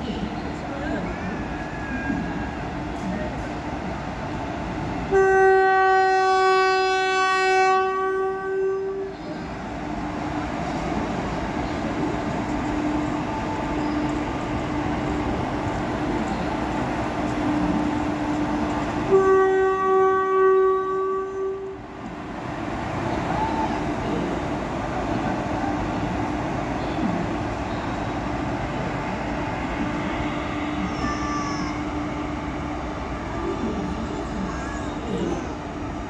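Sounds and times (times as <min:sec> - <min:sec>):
locomotive rumbling on rails: 0:00.0 - 0:36.0
locomotive air horn blasts: 0:05.1 - 0:09.1, 0:19.1 - 0:21.8.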